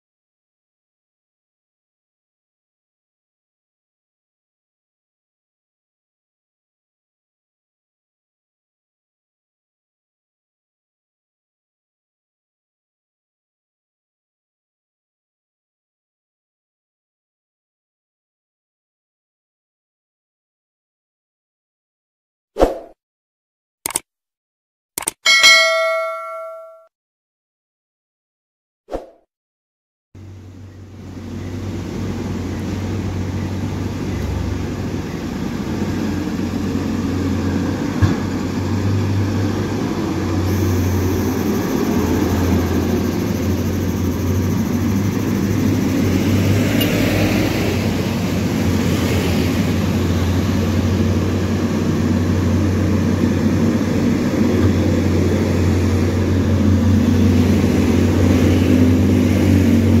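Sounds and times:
diesel truck engines droning: 30.2 - 60.0.

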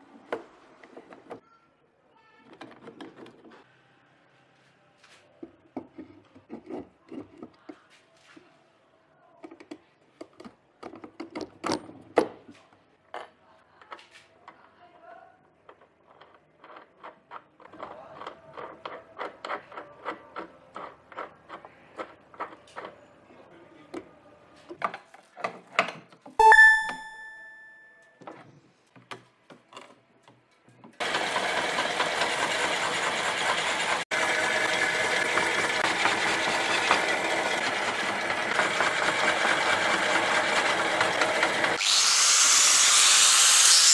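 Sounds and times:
short ringing tone: 26.4 - 28.1
power tool running: 31.0 - 43.9.

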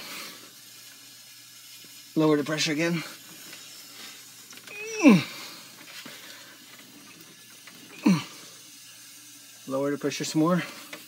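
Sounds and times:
faint hiss of water: 0.0 - 11.0
squeals dropping in pitch: 4.7 - 5.2.

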